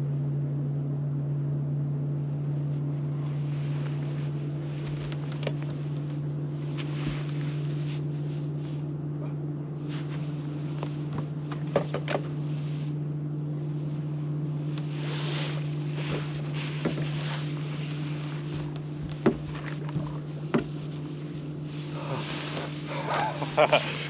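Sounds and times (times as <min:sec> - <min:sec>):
steady low hum: 0:00.0 - 0:24.0
knocks on boat deck: 0:19.0 - 0:20.8.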